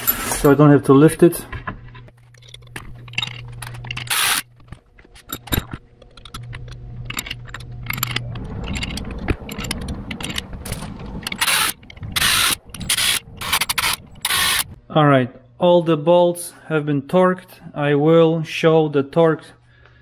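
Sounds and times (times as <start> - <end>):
bolts clinking on metal: 1.9 - 14.4
cordless drill spinning: 3.8 - 4.5, 11.3 - 14.8.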